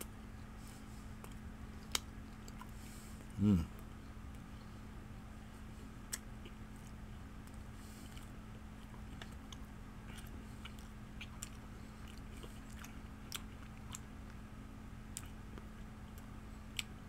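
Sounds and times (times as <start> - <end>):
chewing mouth clicks: 6.1 - 14.4.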